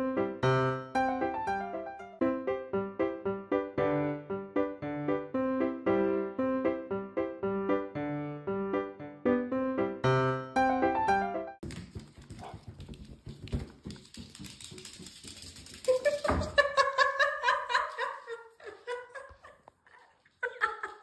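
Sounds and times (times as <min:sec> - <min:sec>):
claws scrabbling on wooden floor: 0:11.6 - 0:17.0.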